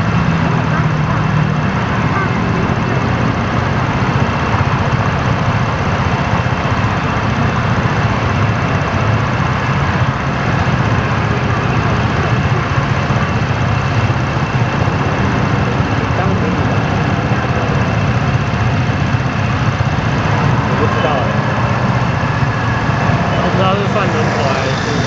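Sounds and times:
scooter engine idling: 0.0s - 25.0s.

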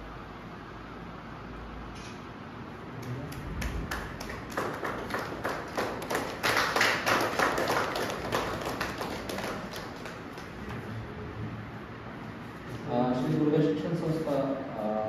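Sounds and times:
group of people clapping: 3.0s - 11.0s.

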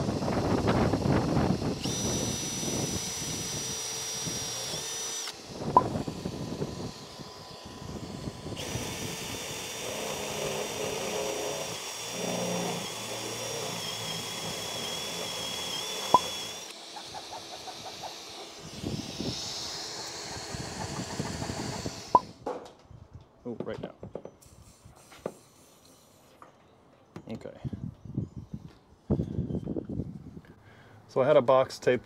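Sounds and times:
cordless drill motor whine: 0.0s - 22.4s.

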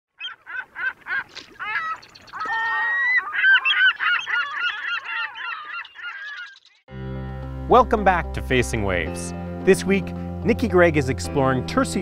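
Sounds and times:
flock of birds calling: 0.2s - 6.8s.

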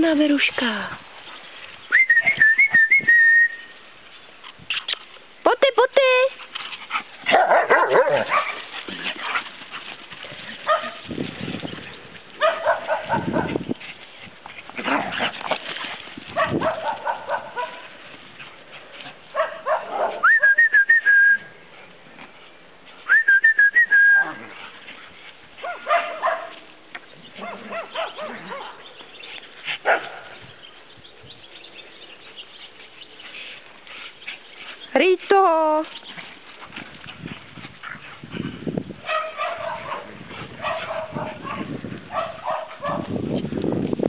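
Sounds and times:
dogs barking and yelping: 6.6s - 20.3s, 25.5s - 26.7s, 27.3s - 30.5s, 36.0s - 43.2s
person whistling rising note: 20.2s - 21.5s, 23.1s - 24.3s.

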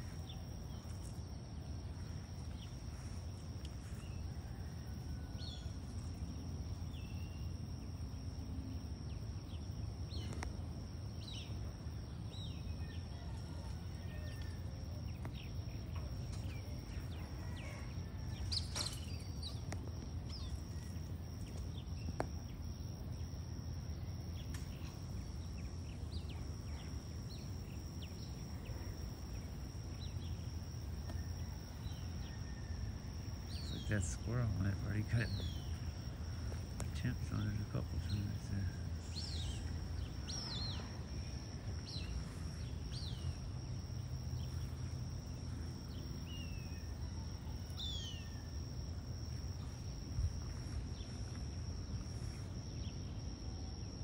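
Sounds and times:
steady low rumble: 32.9s - 53.5s.

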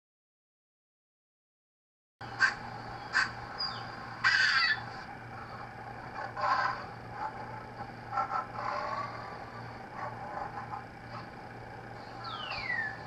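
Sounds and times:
steady low hum: 2.2s - 13.0s.

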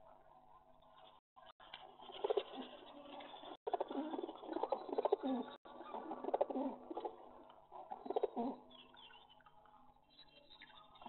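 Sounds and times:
pigeons cooing: 3.7s - 7.2s, 8.0s - 8.6s.

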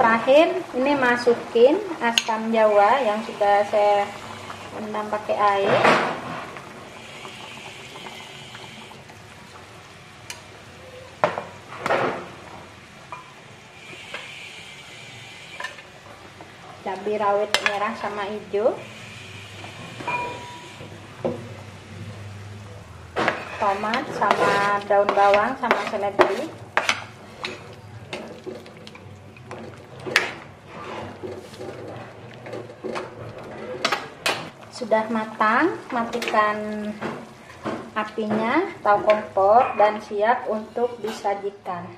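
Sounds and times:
soup simmering in a pan: 0.1s - 22.5s, 23.3s - 37.9s
liquid sloshing in a pan: 23.3s - 33.9s.

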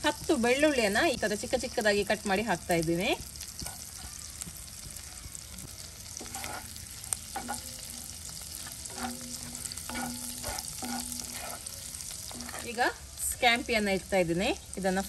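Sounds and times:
garlic sizzling in butter: 0.0s - 15.0s
wooden spatula stirring in pan: 3.1s - 13.1s.

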